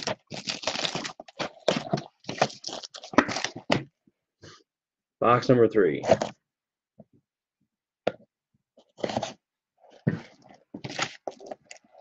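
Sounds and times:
shrink wrap crinkling: 0.0 - 3.7.

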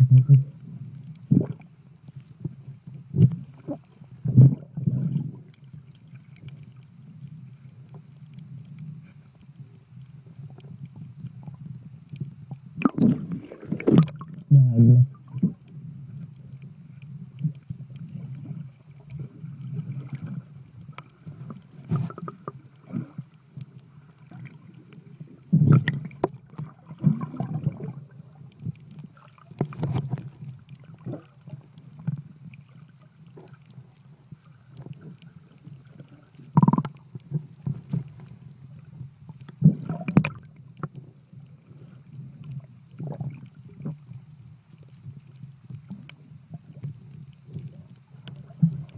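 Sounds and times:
underwater rumble of moving water: 0.0 - 48.9
gurgling splashes: 12.8 - 15.6, 25.5 - 28.2.

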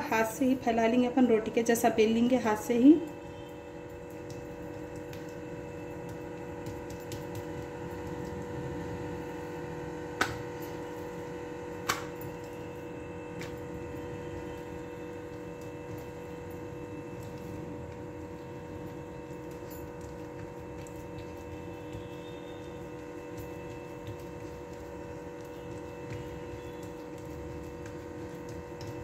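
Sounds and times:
background hum: 0.0 - 29.0
dough squishing by hand: 1.6 - 29.0.

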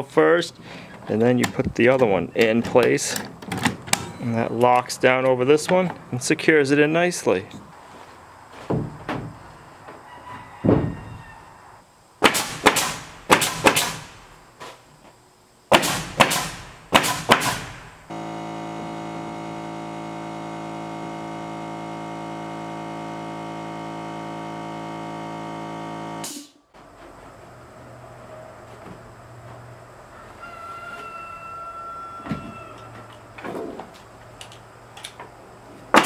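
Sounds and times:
nail gun firing: 12.2 - 14.2, 15.7 - 17.9
steady multi-pitched hum: 15.4 - 27.4.

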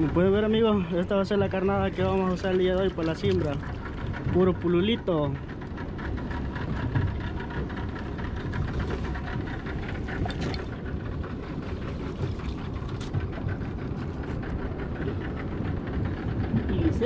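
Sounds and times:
outboard motor running: 0.0 - 17.0.

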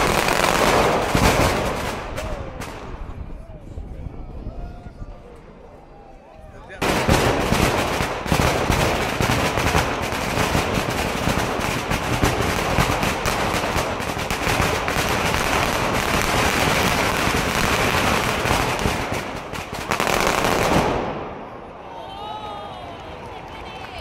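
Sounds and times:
firecrackers banging rapidly: 0.0 - 3.0, 6.8 - 21.4.

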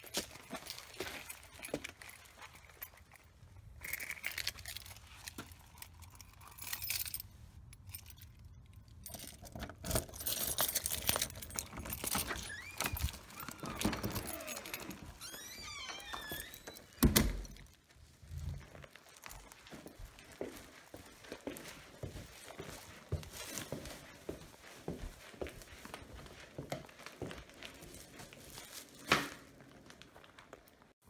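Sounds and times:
keys jangling: 0.1 - 17.8.

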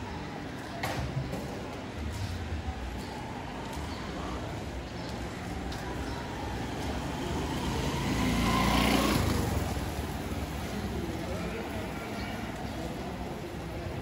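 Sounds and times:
street background noise: 0.0 - 14.0
vehicle engine passing by: 6.5 - 10.7.

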